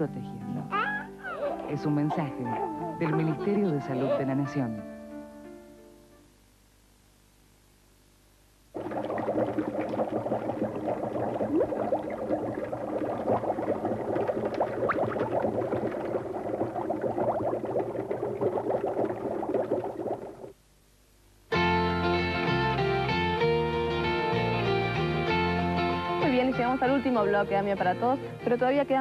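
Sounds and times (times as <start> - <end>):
water bubbling: 8.7 - 20.6.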